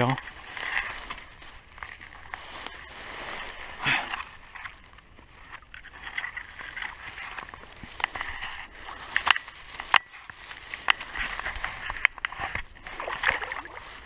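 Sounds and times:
dry grass and reeds rustling: 0.0 - 14.0
stems snapping: 9.1 - 13.7.

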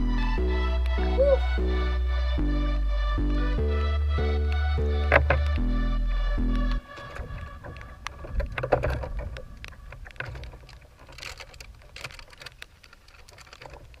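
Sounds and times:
low rumble: 0.0 - 10.1.

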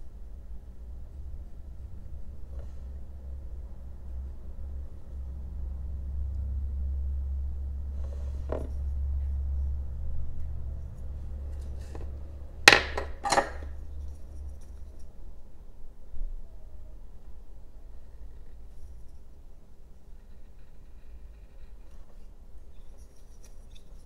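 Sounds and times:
steady low hum: 0.0 - 24.0
metal tools knocking on wood: 12.7 - 13.8.

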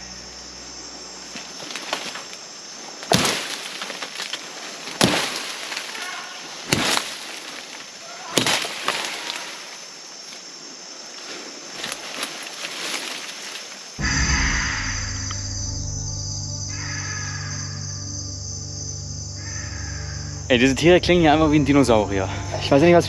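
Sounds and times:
forest insects hissing: 0.0 - 23.0
wood cracking: 3.0 - 9.8.

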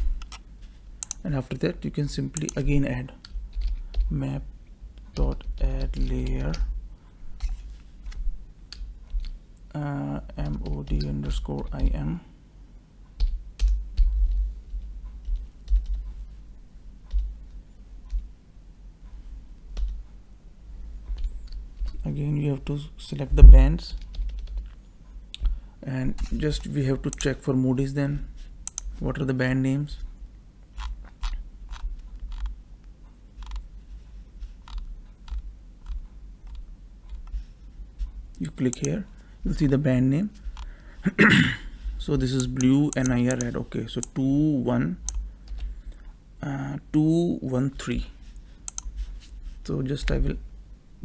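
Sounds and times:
low hum: 0.0 - 51.0
computer mouse clicks: 1.0 - 1.2, 2.4 - 4.1, 26.2 - 27.4, 28.6 - 28.9, 30.8 - 32.5, 33.4 - 33.6, 34.6 - 37.4, 42.4 - 44.2, 45.0 - 45.7, 48.6 - 49.1
computer keyboard typing: 2.4 - 4.1, 5.1 - 6.7, 10.3 - 12.0, 13.2 - 14.5, 15.2 - 16.1, 23.9 - 24.8, 30.8 - 32.5, 34.6 - 37.4, 48.7 - 48.9.

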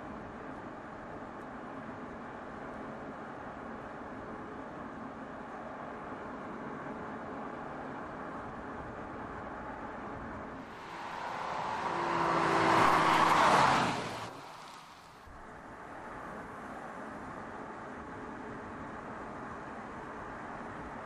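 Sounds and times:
road and wind noise: 0.0 - 21.0
car passing close by: 10.6 - 15.3.

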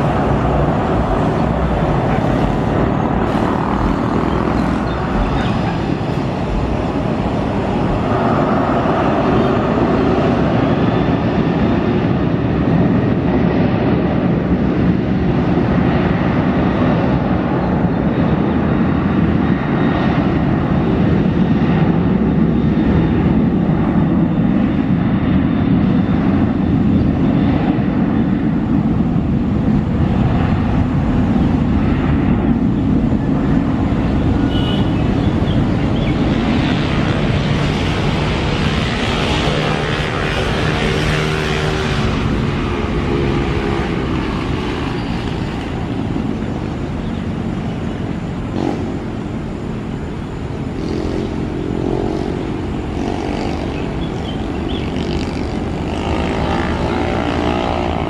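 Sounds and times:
distant jet engines running: 0.0 - 58.0.

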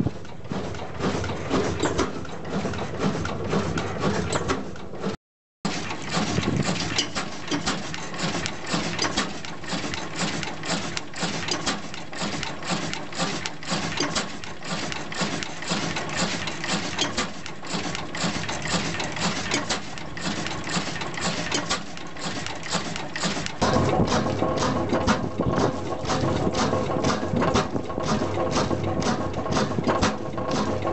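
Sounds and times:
oil engine clattering: 0.0 - 30.9.

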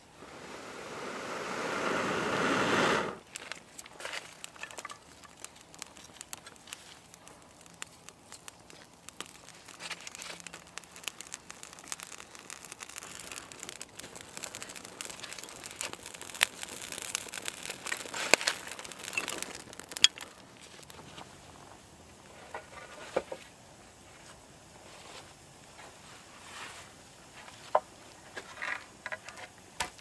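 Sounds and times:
kindling crackling in fire: 0.0 - 30.0.

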